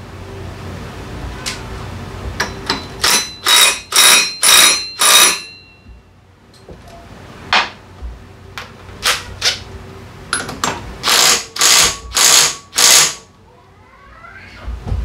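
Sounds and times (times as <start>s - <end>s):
power tool bursts: 11.0s - 13.2s.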